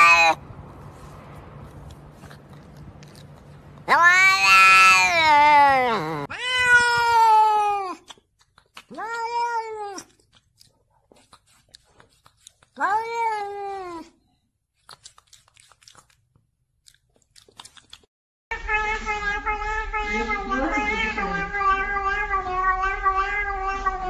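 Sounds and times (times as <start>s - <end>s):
cat meowing: 0.0s - 0.4s, 3.8s - 8.1s, 8.9s - 10.1s, 18.5s - 24.0s.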